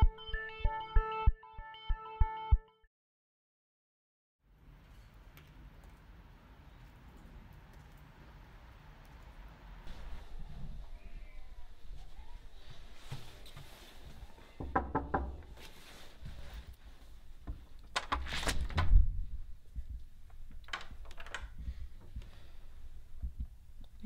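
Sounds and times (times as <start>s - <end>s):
knocking on wooden door: 14.6s - 15.5s
door unlatched and opened: 17.9s - 19.0s, 20.6s - 21.6s.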